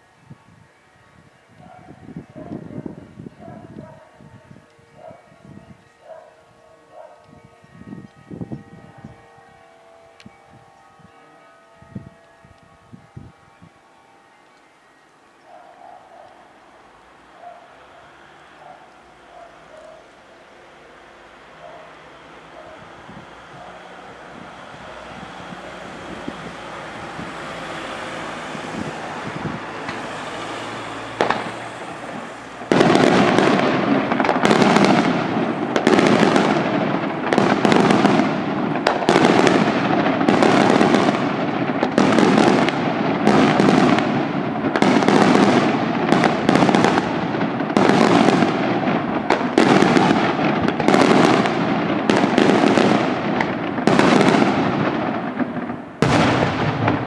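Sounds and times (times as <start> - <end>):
fireworks bangs and crackling: 17.3 - 57.0.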